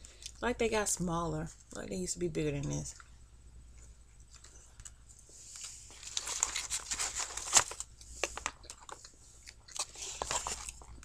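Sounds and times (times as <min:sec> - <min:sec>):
paper wrapper crinkling: 0:05.5 - 0:11.0.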